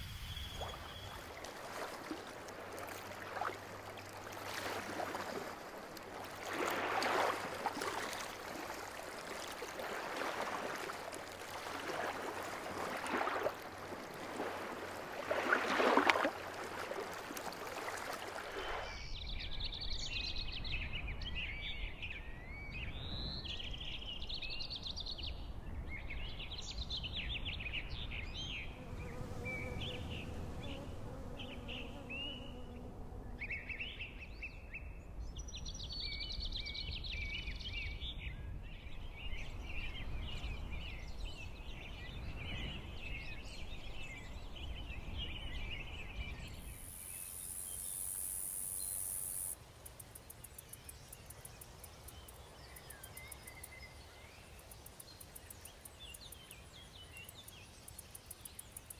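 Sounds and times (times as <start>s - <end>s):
birds chirping and twittering: 0.0s - 1.4s, 48.9s - 58.9s
rushing water: 0.0s - 19.0s.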